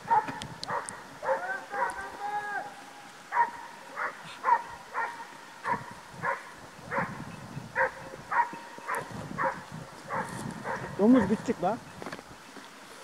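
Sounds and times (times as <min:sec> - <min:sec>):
dog barking: 0:00.0 - 0:02.1, 0:03.3 - 0:07.2, 0:07.8 - 0:11.0.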